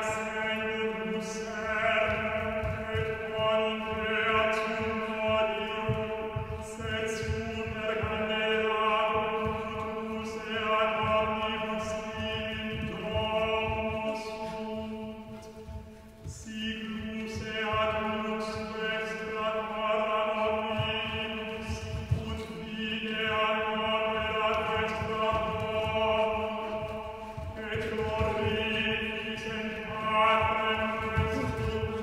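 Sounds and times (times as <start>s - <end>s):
low thuds: 1.4s - 32.0s
voices chanting a drone: 16.6s - 32.0s.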